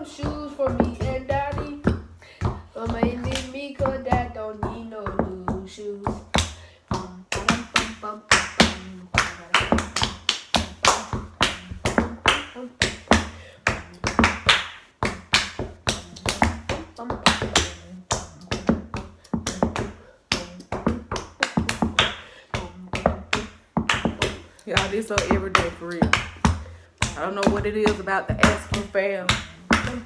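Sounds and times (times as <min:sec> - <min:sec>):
hand claps: 0:07.3 - 0:13.2, 0:18.3 - 0:22.2.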